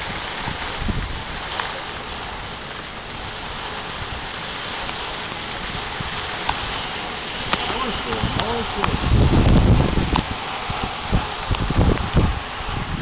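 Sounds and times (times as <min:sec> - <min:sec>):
heavy rain on water: 0:00.0 - 0:13.0
sharp tick: 0:06.4 - 0:06.7, 0:07.5 - 0:10.3.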